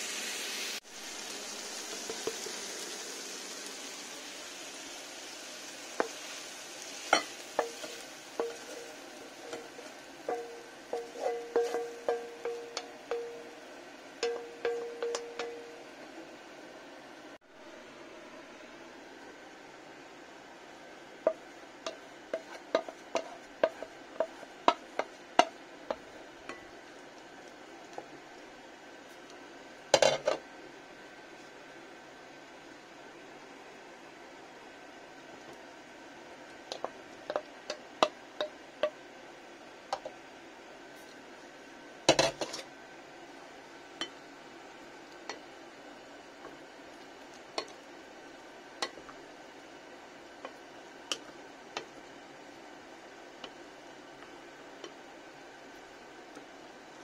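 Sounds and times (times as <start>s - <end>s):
wooden spoon tapping bowls: 7.2s - 13.5s, 14.2s - 15.8s, 21.2s - 26.7s, 36.7s - 39.0s.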